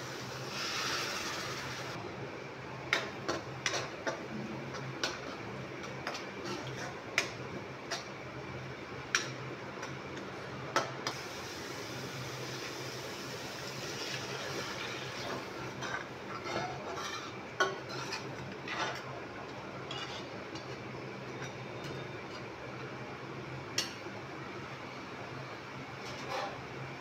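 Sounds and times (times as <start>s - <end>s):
steel spoon scraping a pan: 6.0s - 7.0s, 14.6s - 19.2s, 19.9s - 20.8s, 26.0s - 26.6s.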